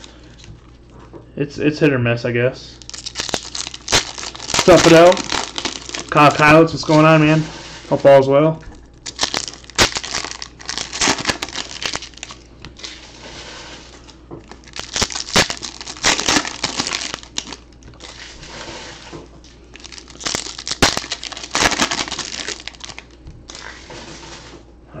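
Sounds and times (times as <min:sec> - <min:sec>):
foil wrappers tearing and crinkling: 0:02.8 - 0:07.2, 0:09.0 - 0:13.2, 0:13.8 - 0:18.8, 0:19.6 - 0:23.9.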